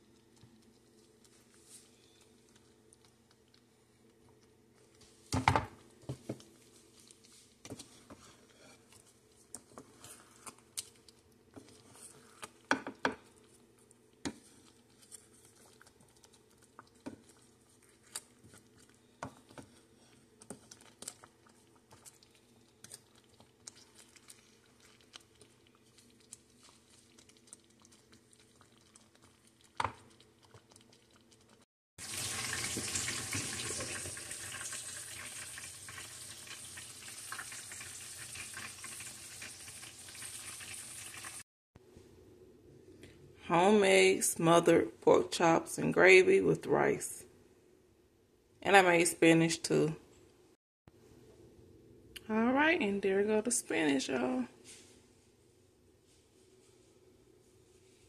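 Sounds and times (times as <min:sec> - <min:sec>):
food sizzling in pan: 0:32.0 - 0:41.4.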